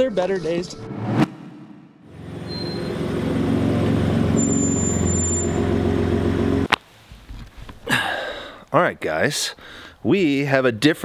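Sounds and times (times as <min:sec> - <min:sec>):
truck engine humming: 0:02.1 - 0:06.7.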